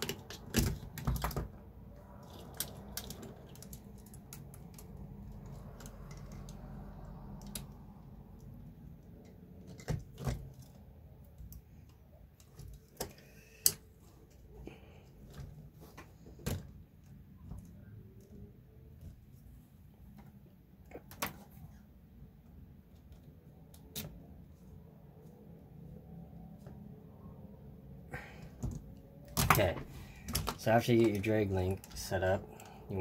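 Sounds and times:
plastic and metal parts clicking: 0.0s - 19.1s, 28.5s - 33.0s.

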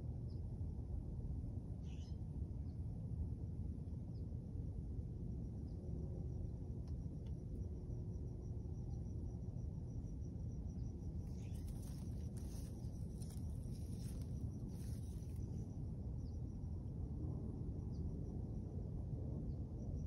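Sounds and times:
insect chirping: 5.6s - 16.8s
low rumble: 11.2s - 16.4s
leaves rustling by hand: 11.3s - 15.5s.

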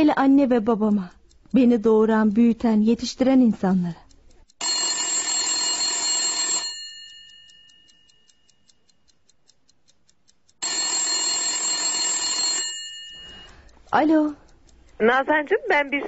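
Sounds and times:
telephone bell ringing: 4.6s - 7.6s, 10.6s - 13.5s.

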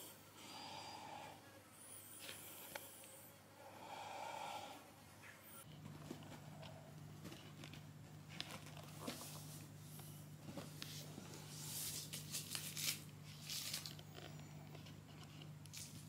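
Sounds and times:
low steady hum: 0.0s - 16.0s
kitten and toy rustling on floor: 7.2s - 14.9s.

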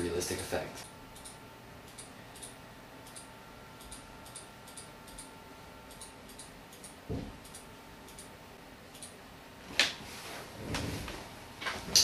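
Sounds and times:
computer mouse clicks: 1.2s - 5.3s, 5.9s - 8.3s, 8.9s - 9.2s.

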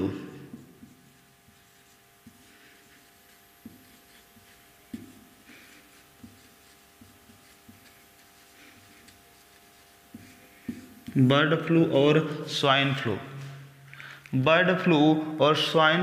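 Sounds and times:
marker pen scratching on whiteboard: 0.0s - 11.3s.

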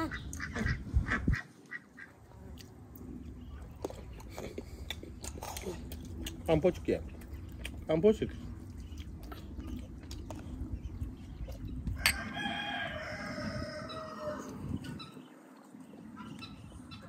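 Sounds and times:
rooster crowing: 12.0s - 14.6s.

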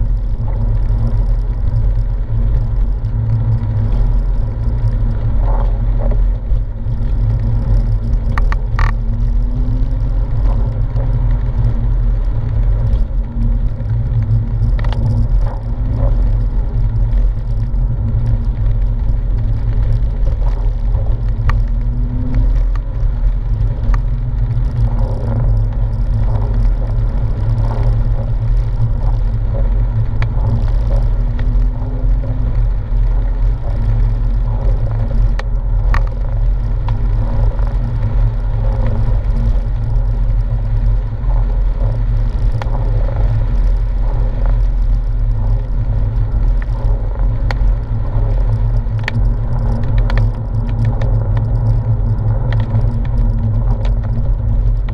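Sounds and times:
car engine drone: 0.0s - 54.9s
tyre noise on wet road: 0.0s - 54.9s
faint clicks: 41.6s - 54.9s.

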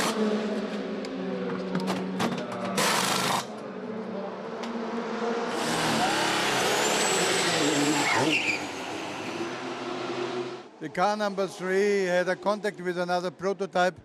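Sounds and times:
vehicle rushing with falling whine: 3.4s - 13.5s.

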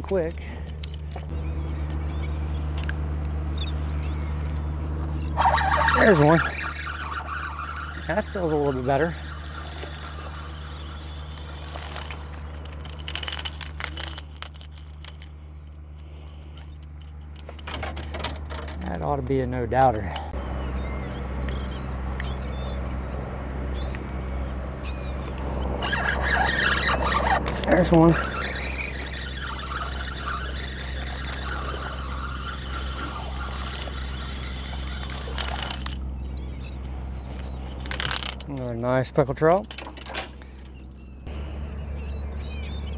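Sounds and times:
fishing reel cranking: 5.4s - 15.3s, 25.8s - 36.0s, 37.3s - 38.5s.

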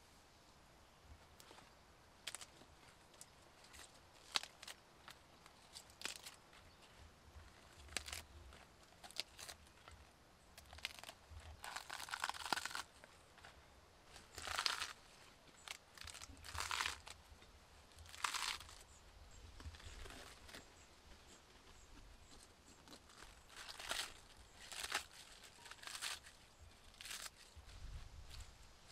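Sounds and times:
lettuce leaves tearing: 2.2s - 13.1s, 14.1s - 18.9s, 19.6s - 20.7s, 21.7s - 28.9s.

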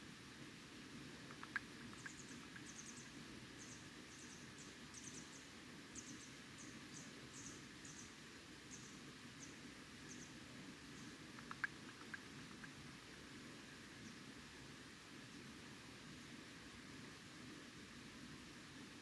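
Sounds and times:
soft ticks: 1.2s - 2.8s, 11.3s - 12.8s.

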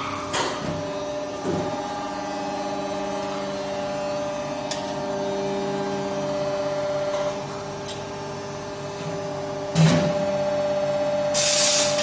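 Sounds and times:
machine motor and pump humming: 0.0s - 12.0s.

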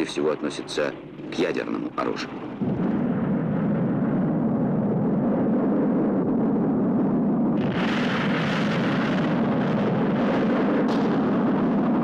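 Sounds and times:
rocket launch roar: 2.3s - 12.0s.

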